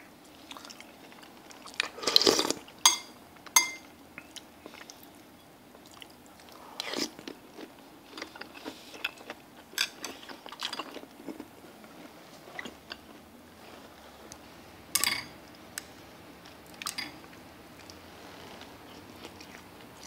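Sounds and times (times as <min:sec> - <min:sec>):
utensils clinking against bowl: 0:02.9 - 0:03.9
chewing: 0:04.2 - 0:13.8, 0:16.7 - 0:20.0.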